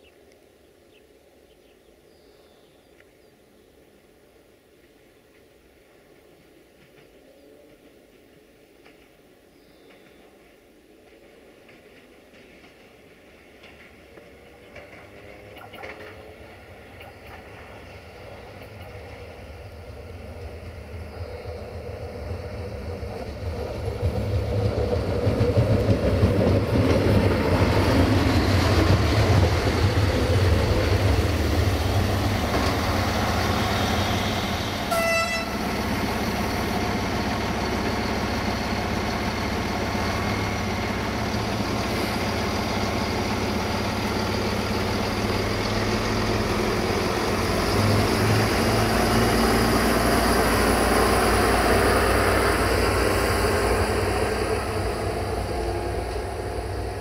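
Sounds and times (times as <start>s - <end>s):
diesel train passing: 3.9s - 57.0s
train horn toot: 34.4s - 35.7s.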